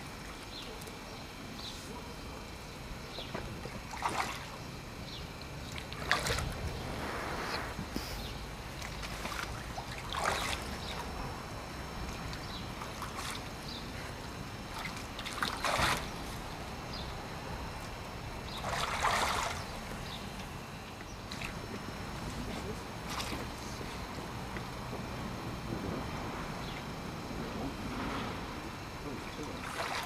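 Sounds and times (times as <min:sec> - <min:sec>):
low steady rumble: 0:00.0 - 0:30.0
water splashing: 0:03.6 - 0:04.7, 0:05.6 - 0:08.0, 0:08.6 - 0:11.2, 0:12.1 - 0:13.6, 0:14.7 - 0:16.2, 0:18.6 - 0:19.8, 0:22.5 - 0:23.6, 0:29.1 - 0:30.0.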